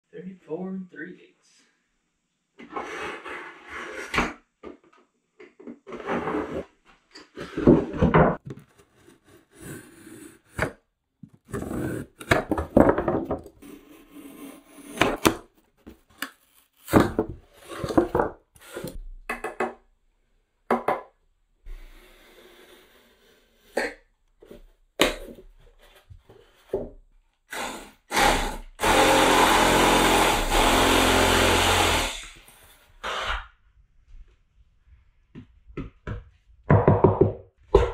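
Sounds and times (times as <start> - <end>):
foam being cut and scraped: 8.7 - 10.8, 11.5 - 12.3, 13.6 - 15.4
power tool running: 27.5 - 33.3.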